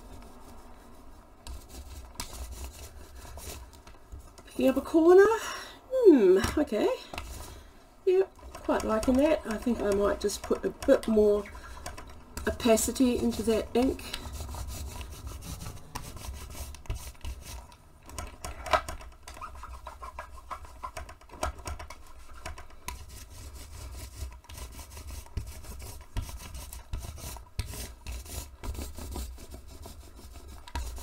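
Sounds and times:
stiff brush scrubbing and dabbing: 0.0s - 5.2s, 6.7s - 17.8s, 19.3s - 21.1s, 21.9s - 31.0s.

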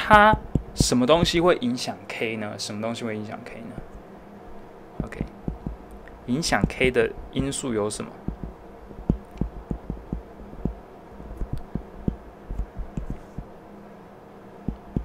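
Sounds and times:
stylus tapping on tablet: 0.0s - 1.4s, 5.0s - 5.8s, 6.6s - 7.6s, 8.3s - 10.8s, 11.4s - 13.5s, 14.7s - 15.0s
faint steady hum: 0.0s - 15.0s.

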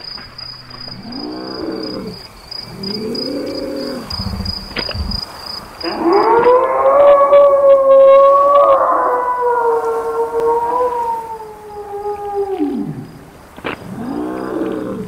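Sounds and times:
long drawn-out howl: 5.8s - 15.0s.

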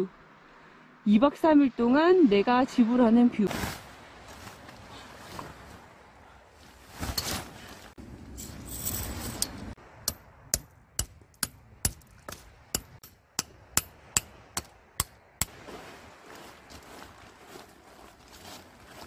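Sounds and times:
rustling: 6.6s - 9.6s
tent peg hammering: 9.3s - 15.5s.

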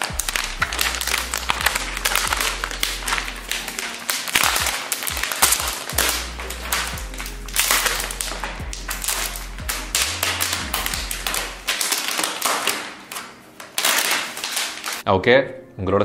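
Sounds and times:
plastic film peeling off: 0.0s - 15.0s.

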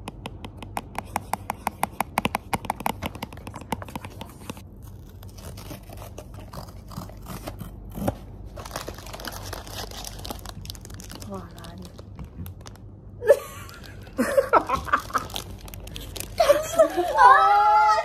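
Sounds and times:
crinkling and rustling: 2.8s - 12.9s, 13.7s - 17.4s.

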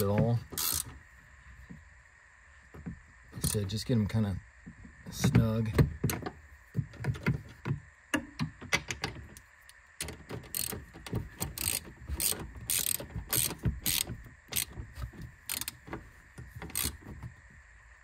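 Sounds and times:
socket ratchet clicking: 0.6s - 1.0s, 8.4s - 17.1s.

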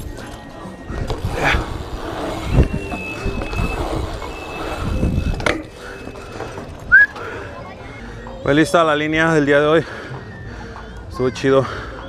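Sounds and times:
bike tyres rumbling on concrete: 0.0s - 7.2s.

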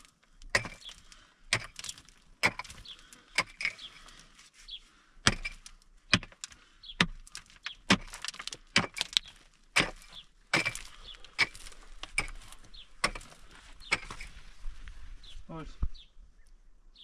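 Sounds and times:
pickaxe striking stony earth: 0.0s - 4.0s, 5.2s - 14.3s
dirt and pebbles scattering: 0.0s - 4.5s, 5.2s - 14.8s.

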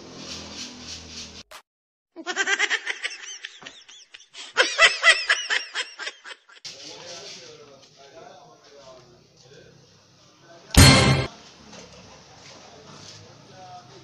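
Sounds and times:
high-pitched laughter: 2.2s - 6.6s.

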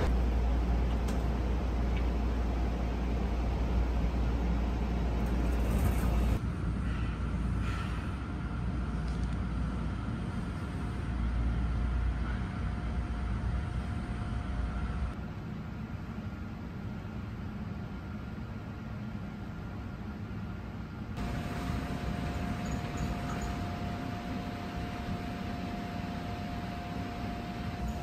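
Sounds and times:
people-mover station rumble: 0.0s - 8.8s, 21.2s - 28.0s
faint steady whines: 0.0s - 28.0s.

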